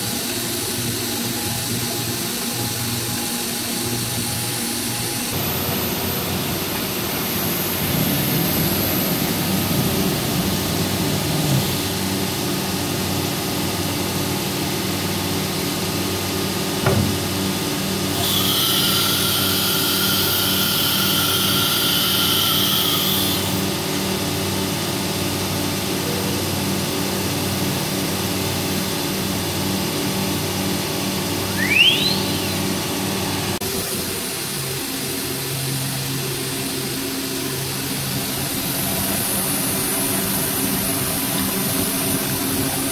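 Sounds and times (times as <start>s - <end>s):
cnc router humming: 0.0s - 42.9s
high-pitched whine: 28.4s - 42.9s.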